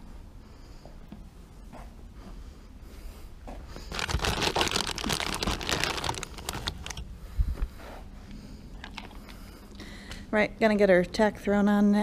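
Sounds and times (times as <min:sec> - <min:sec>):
rustling and crinkling: 0:03.5 - 0:09.7.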